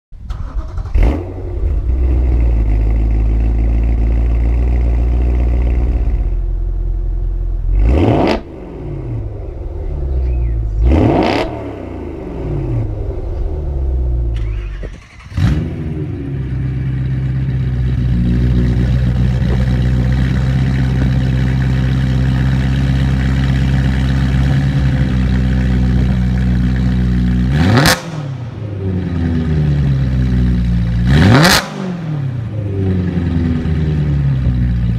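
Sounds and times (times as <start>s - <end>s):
car engine idling and revving: 0.1s - 34.9s.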